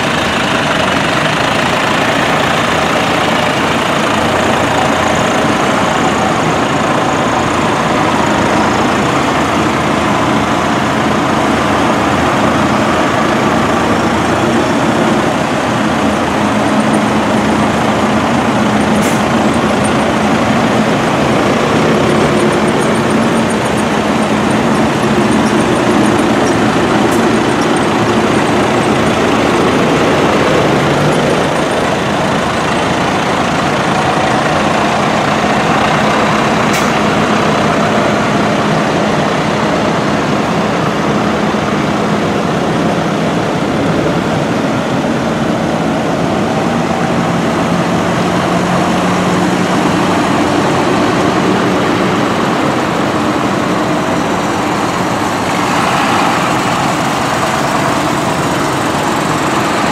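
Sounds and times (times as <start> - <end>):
tractor diesel engines droning: 0.0 - 59.9.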